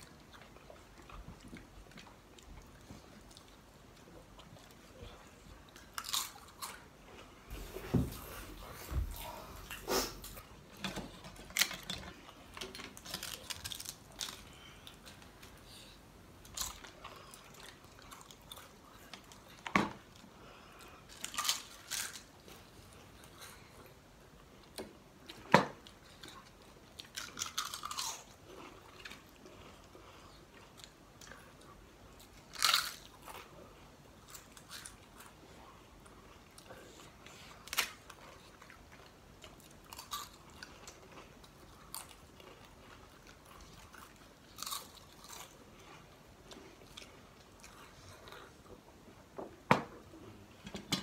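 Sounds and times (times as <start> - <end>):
crunching and chewing: 0.0 - 7.7, 8.5 - 48.9.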